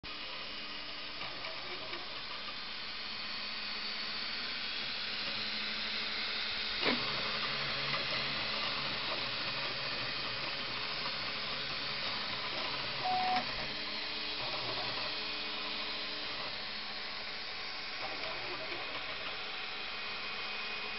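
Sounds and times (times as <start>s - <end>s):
stepper motors humming: 11.8s - 13.8s
short beep: 13.0s - 13.4s.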